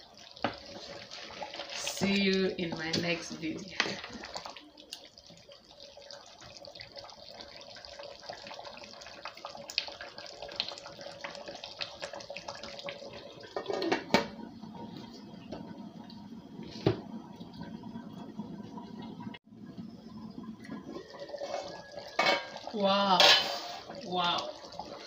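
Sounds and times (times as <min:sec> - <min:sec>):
soup bubbling in a pot: 0:00.0 - 0:25.0
metal lid clank: 0:22.2 - 0:22.6, 0:23.2 - 0:23.7.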